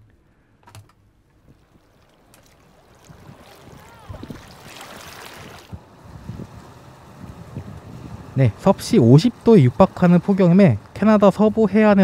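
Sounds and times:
waves lapping against rocks: 1.3s - 7.9s
wind buffeting microphone: 2.9s - 9.9s.

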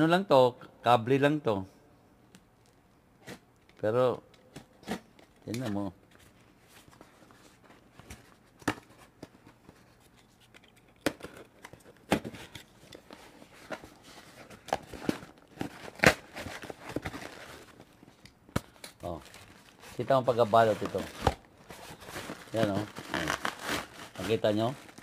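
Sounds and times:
cardboard tearing and rustling: 12.0s - 17.9s, 18.7s - 25.0s.

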